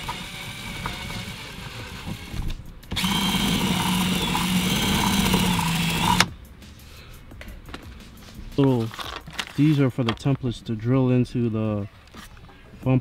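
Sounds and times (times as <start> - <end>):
cordless drill drilling: 0.0 - 6.3.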